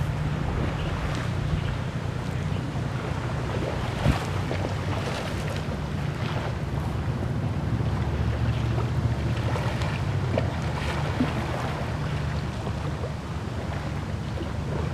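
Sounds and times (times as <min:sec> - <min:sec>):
river water lapping: 0:00.0 - 0:14.9
wind buffeting microphone: 0:00.0 - 0:14.9.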